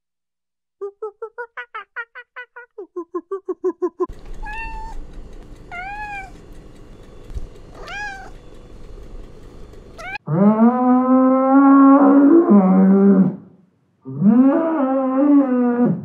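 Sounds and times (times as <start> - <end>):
cat meowing: 4.4 - 5.0, 5.7 - 6.4, 7.8 - 8.4, 10.0 - 10.2.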